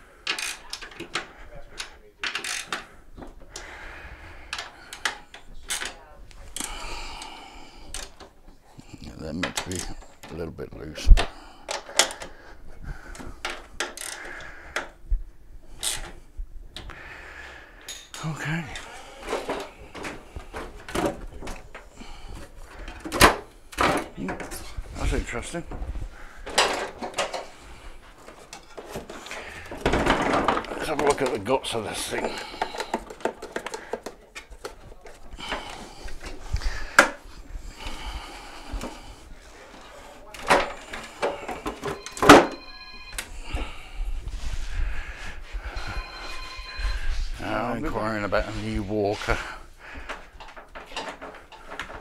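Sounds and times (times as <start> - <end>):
plastic parts clicking and rustling: 0.2 - 3.7, 4.5 - 7.3, 7.9 - 8.4, 9.3 - 10.5, 11.1 - 12.4, 13.1 - 15.0, 15.8 - 16.2, 17.9 - 37.2, 39.7 - 43.3, 50.0 - 52.0.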